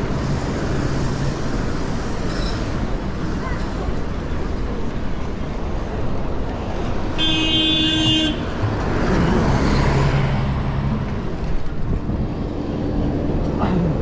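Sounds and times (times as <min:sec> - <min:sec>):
street traffic noise: 0:00.0 - 0:14.0
vehicle horn honk: 0:07.2 - 0:08.5.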